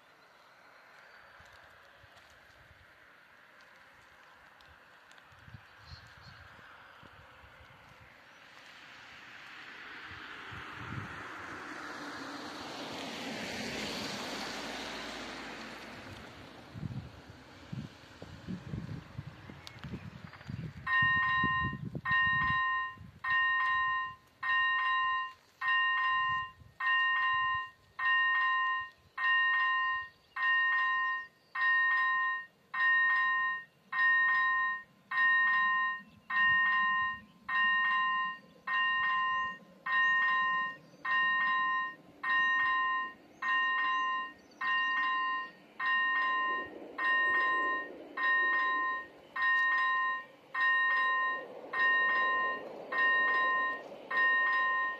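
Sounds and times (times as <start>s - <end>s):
level crossing warning bell: 20.9s - 54.9s.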